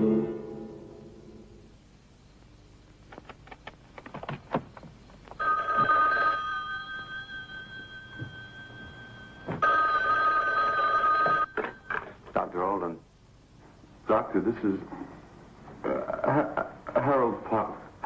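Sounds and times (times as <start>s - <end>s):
telephone bell ringing: 5.4s - 12.0s.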